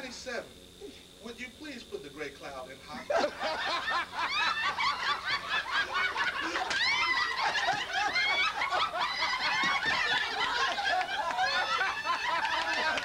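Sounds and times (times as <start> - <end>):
crowd laughing: 3.0 - 13.0.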